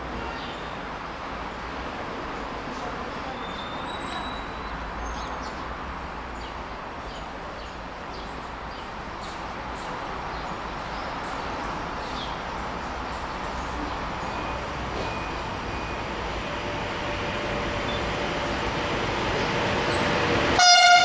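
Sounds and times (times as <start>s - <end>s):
small birds chirping: 6.4s - 15.9s.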